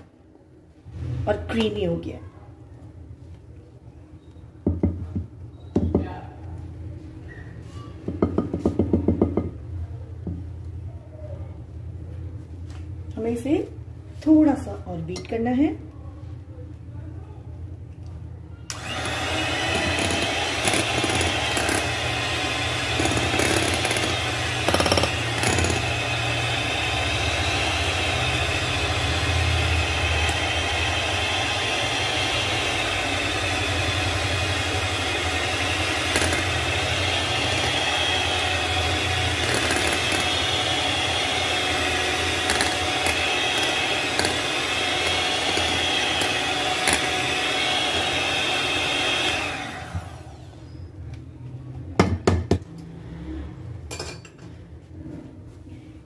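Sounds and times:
electric hand mixer whining: 0:18.7 - 0:50.5.

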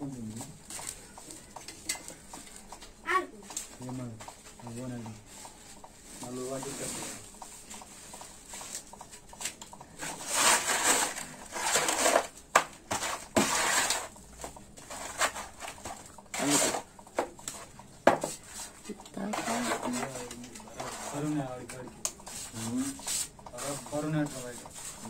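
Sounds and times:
mortar scraping in plastic bowl: 0:10.1 - 0:12.3, 0:12.9 - 0:14.1.

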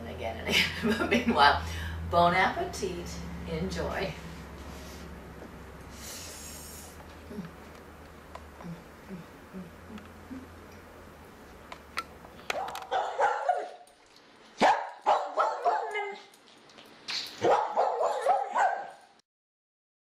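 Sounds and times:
dog barking: 0:12.5 - 0:13.9, 0:14.6 - 0:16.2, 0:17.4 - 0:19.1.

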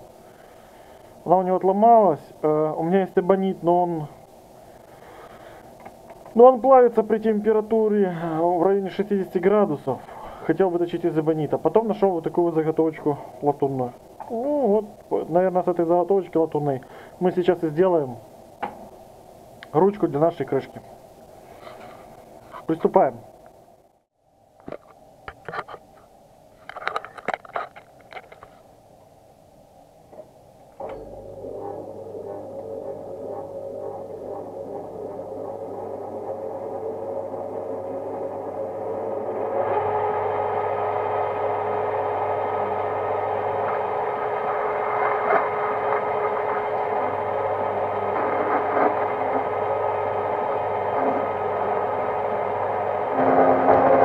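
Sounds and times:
faint steady hum: 0:00.0 - 0:54.0
metal lathe whining: 0:30.9 - 0:54.0.

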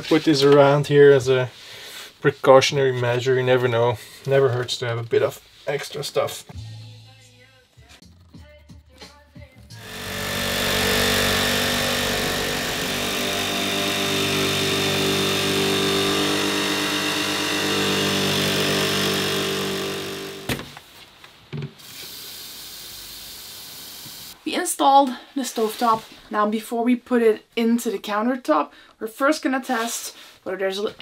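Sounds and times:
electric jigsaw cutting wood: 0:09.8 - 0:20.8.

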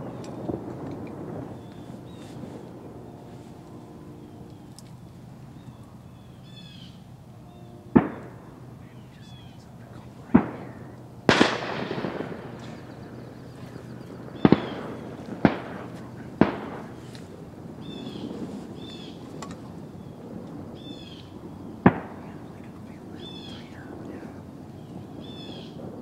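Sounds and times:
short bird calls: 0:01.3 - 0:11.0, 0:12.5 - 0:25.8
shotgun shots echoing: 0:07.9 - 0:08.6, 0:10.3 - 0:19.8, 0:21.8 - 0:26.0.

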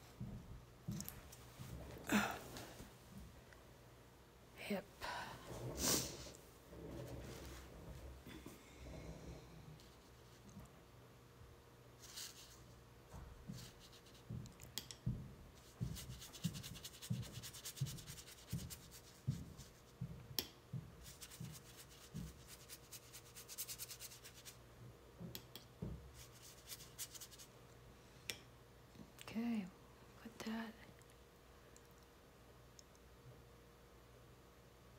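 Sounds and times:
brush scrubbing on paper: 0:15.7 - 0:19.9, 0:21.0 - 0:24.6.

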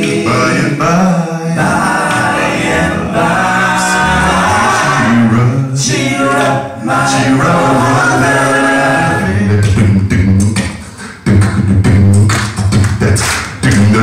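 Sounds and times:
men singing in harmony: 0:00.0 - 0:09.8
beatbox vocal percussion: 0:09.0 - 0:14.0.

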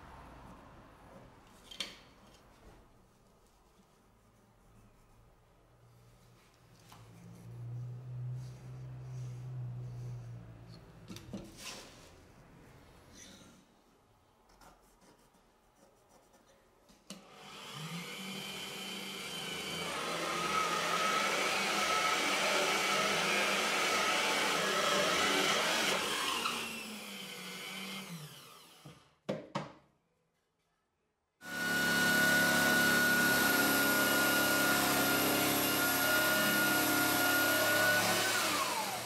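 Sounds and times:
drill bit cutting wood: 0:17.5 - 0:28.9, 0:31.4 - 0:39.0
drill press motor running: 0:31.4 - 0:39.0.

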